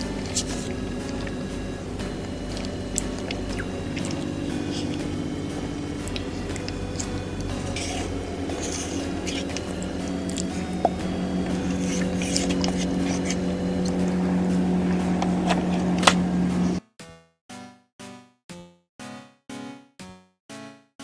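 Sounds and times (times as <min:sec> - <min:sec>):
wooden spoon scraping ice cream: 0:00.0 - 0:05.1, 0:06.0 - 0:14.2
wet eating sounds: 0:00.0 - 0:16.8
background music with held notes: 0:00.0 - 0:20.9.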